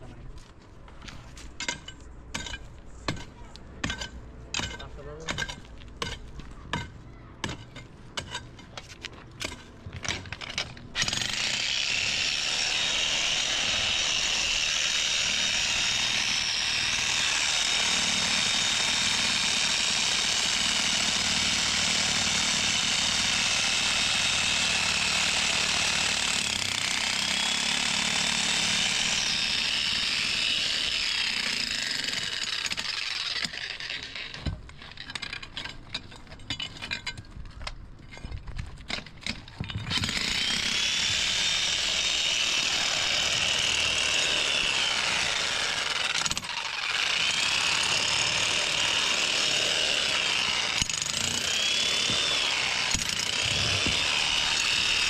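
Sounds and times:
power tool whining: 39.9 - 55.0.

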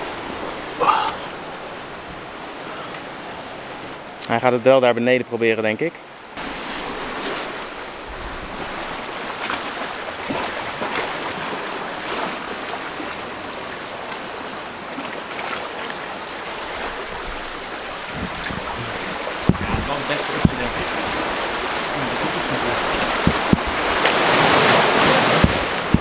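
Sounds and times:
surf washing over rocks: 0.0 - 4.7, 6.1 - 26.0
sharp knocks: 18.1 - 20.9, 22.9 - 24.2, 25.3 - 26.0.

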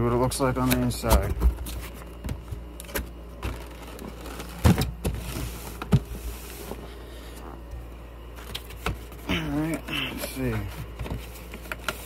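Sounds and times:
cardboard scraping rustle: 3.4 - 7.7.

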